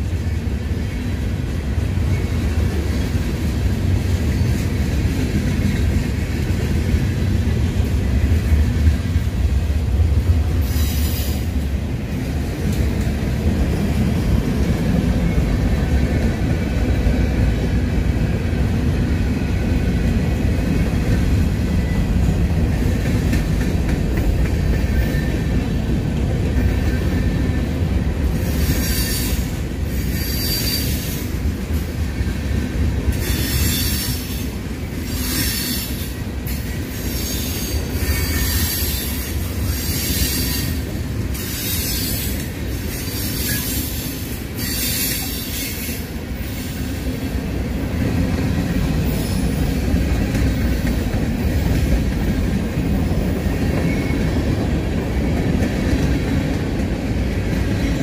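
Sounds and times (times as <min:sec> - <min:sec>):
train wheels squealing: 0:10.6 - 0:11.6, 0:21.3 - 0:22.4, 0:24.6 - 0:25.6, 0:28.3 - 0:31.4, 0:33.1 - 0:47.2, 0:49.0 - 0:49.9, 0:53.1 - 0:54.6.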